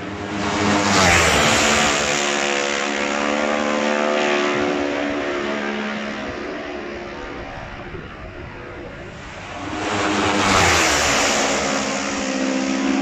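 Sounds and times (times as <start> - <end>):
racing motorcycle passing: 0.0 - 13.0.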